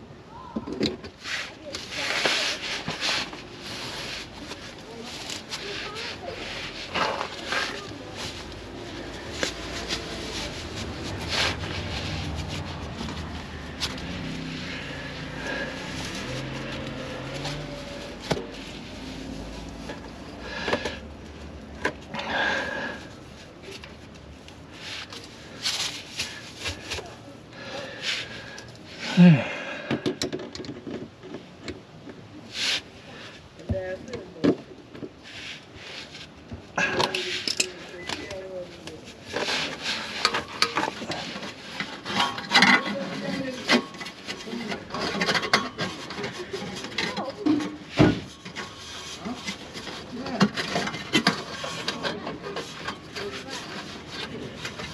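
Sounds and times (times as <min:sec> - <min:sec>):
hands rubbing and rustling: 0:01.2 - 0:22.1, 0:23.1 - 0:27.4.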